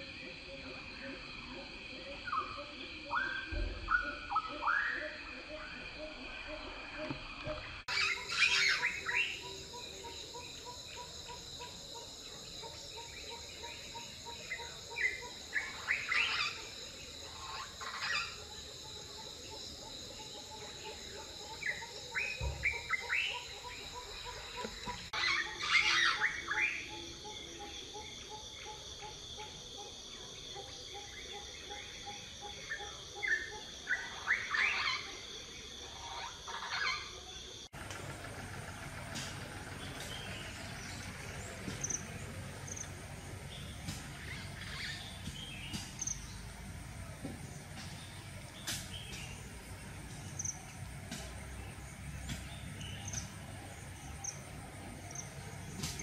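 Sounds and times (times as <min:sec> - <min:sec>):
birds chirping: 0:02.2 - 0:28.7, 0:37.7 - 0:56.0
high insect drone: 0:05.2 - 0:56.0.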